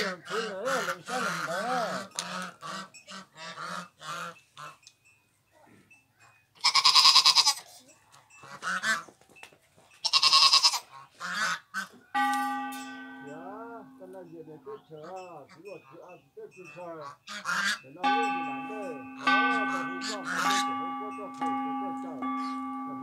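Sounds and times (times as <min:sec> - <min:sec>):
farm animal crying out: 0:06.6 - 0:07.6, 0:10.0 - 0:11.9
ringing tone: 0:12.2 - 0:15.5, 0:18.0 - 0:23.0.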